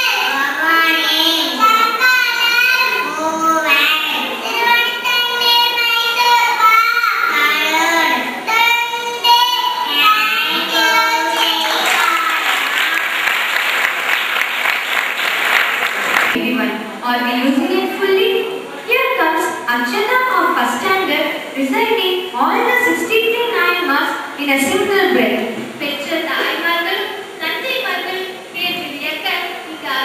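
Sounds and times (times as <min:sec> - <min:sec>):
audience applauding: 0:10.8 - 0:16.4.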